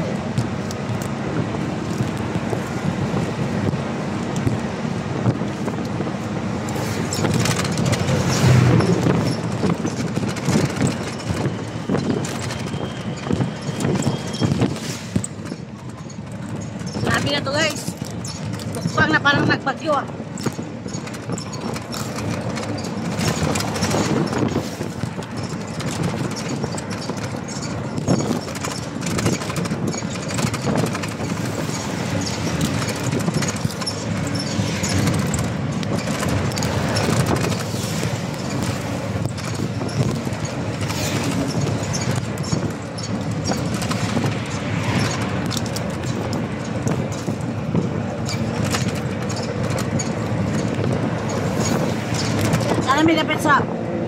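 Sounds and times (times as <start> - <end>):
road noise: 0.0 - 54.0
vehicle rattling: 0.0 - 54.0.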